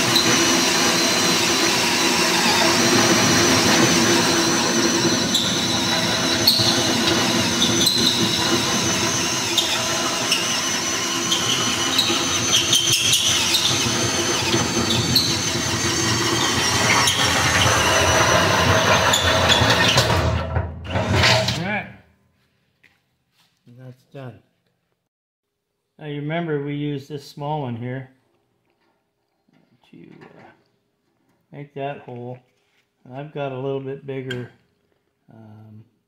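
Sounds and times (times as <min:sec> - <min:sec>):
cordless drill cutting steel: 0:00.0 - 0:21.6.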